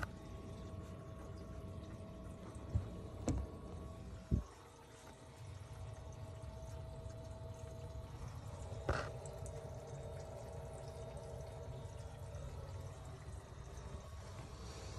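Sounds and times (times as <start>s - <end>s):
faint hum: 0.0s - 14.9s
water pouring and trickling: 0.0s - 14.9s.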